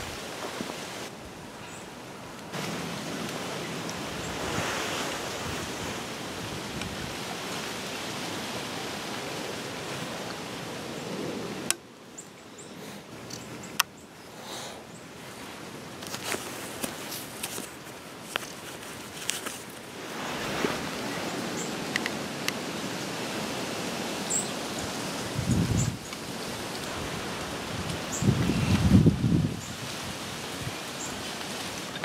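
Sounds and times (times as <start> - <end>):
rushing wind: 0.0 - 32.0
clothing and gear rustling: 15.3 - 22.2.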